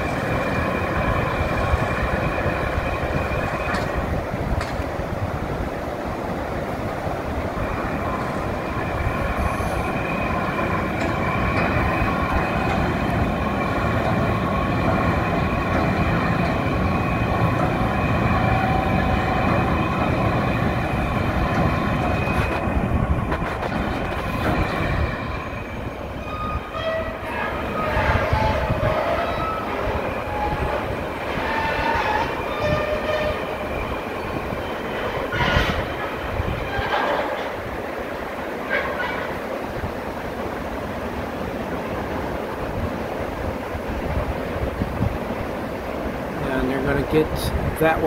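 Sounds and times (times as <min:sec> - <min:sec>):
steel wheels rumbling on rails: 0:00.0 - 0:48.0
high wheel squeal: 0:25.2 - 0:36.0.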